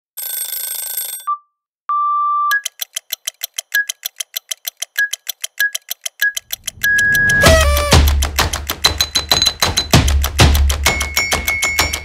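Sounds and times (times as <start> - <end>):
fast clock ticking: 2.5 - 12.0
electronic beeps: 5.0 - 8.0
music: 6.8 - 12.0.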